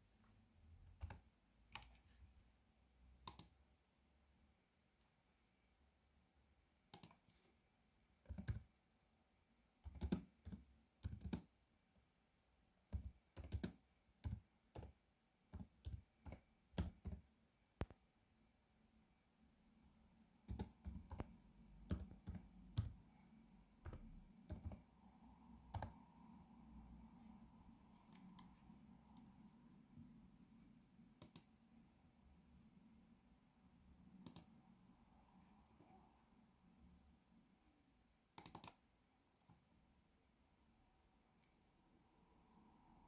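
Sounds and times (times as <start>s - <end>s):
faint steady hum: 0.0s - 43.0s
laptop keyboard typing: 1.0s - 1.2s, 3.2s - 3.6s, 6.9s - 7.2s, 8.2s - 8.7s, 9.8s - 11.5s, 12.8s - 17.2s, 20.5s - 23.0s, 23.8s - 24.8s, 25.7s - 26.0s, 34.2s - 34.5s, 38.4s - 38.8s.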